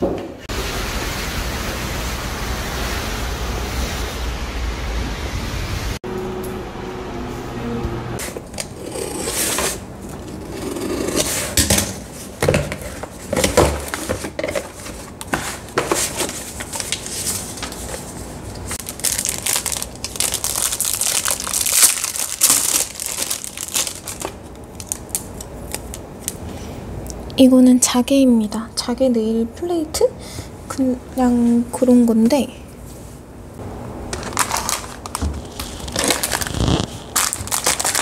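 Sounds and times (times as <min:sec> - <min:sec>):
bubble wrap crinkling: 0:15.6 - 0:18.0, 0:18.7 - 0:26.4, 0:34.1 - 0:38.0
cardboard crackling: 0:34.2 - 0:38.0.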